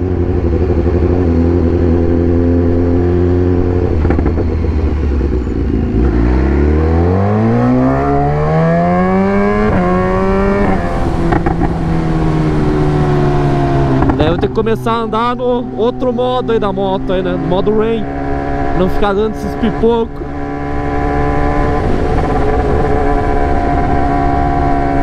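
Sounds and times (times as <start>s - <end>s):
motorcycle engine revving: 0.0s - 25.0s
quick gear upshifts: 0.0s - 25.0s
exhaust pops: 4.0s - 4.4s, 11.2s - 11.8s.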